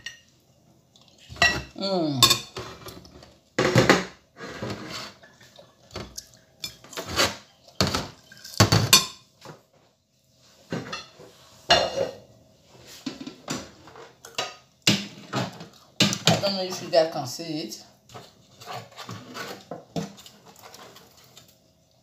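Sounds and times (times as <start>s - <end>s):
plates and cutlery clattering: 6.0s - 9.6s, 10.7s - 12.2s.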